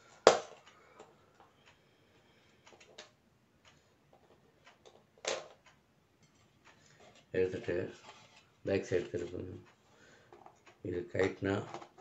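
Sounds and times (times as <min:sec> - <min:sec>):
plastic clock hands clicking: 0:04.6 - 0:05.8.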